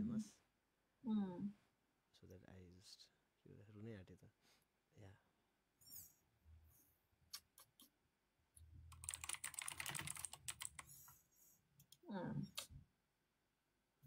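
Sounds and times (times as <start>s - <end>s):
typing on computer keyboard: 8.9s - 10.9s.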